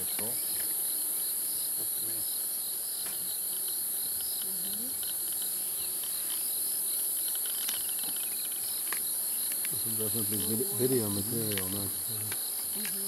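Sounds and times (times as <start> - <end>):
crickets and insects trilling: 0.0 - 13.0.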